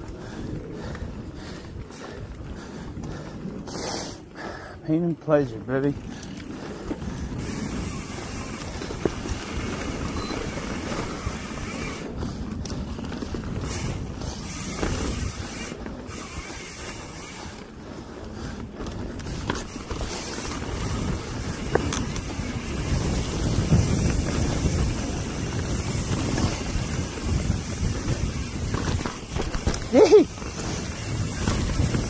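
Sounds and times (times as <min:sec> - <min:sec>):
bike tyres rumbling over dirt: 0:00.0 - 0:32.0
wind on microphone: 0:05.9 - 0:32.0
bike knocking over bumps: 0:19.2 - 0:32.0.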